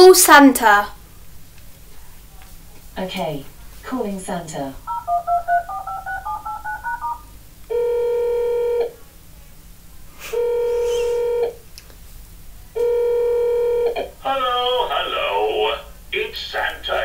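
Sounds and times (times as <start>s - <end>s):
phone ringing tones: 4.9s - 8.9s, 12.8s - 13.9s
stepping dial tones: 4.9s - 8.9s.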